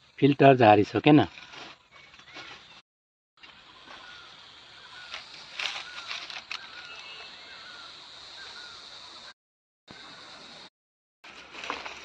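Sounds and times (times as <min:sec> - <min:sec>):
bird warbling chirps: 0:03.6 - 0:09.3.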